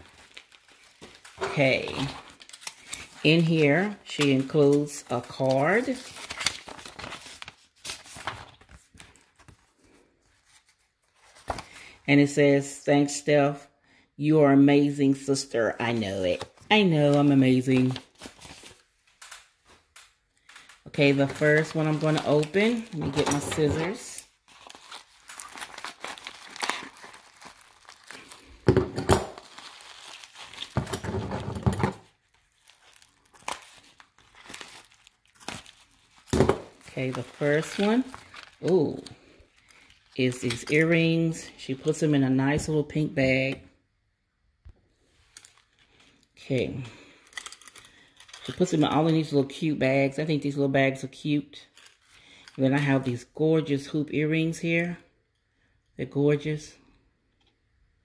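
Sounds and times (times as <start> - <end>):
paper rustling: 0.0 - 11.8, 16.0 - 41.1.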